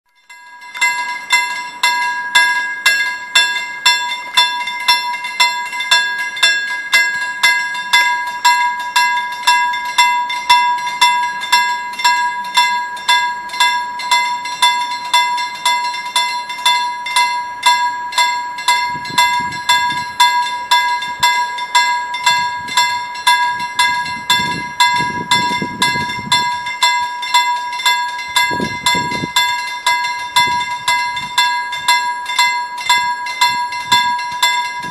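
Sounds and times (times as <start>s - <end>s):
level crossing bell ringing: 0.1s - 34.9s.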